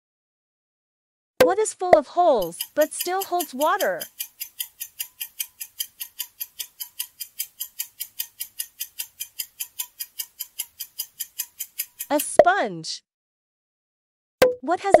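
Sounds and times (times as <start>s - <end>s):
clock ticking fast: 1.4s - 12.6s.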